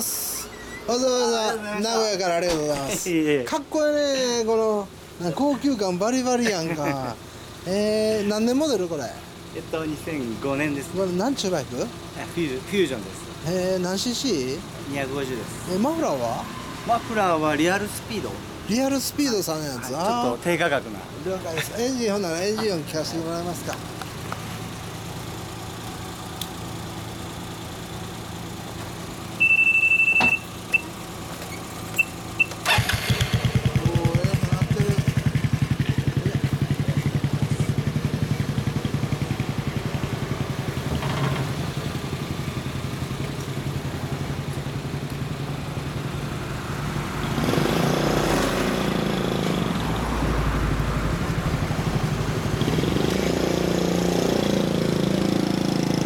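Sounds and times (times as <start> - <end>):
loud high-pitched beep: 0.4 - 0.9, 29.4 - 30.9, 32.0 - 32.6
scooter engine starting and idling: 21.8 - 46.5.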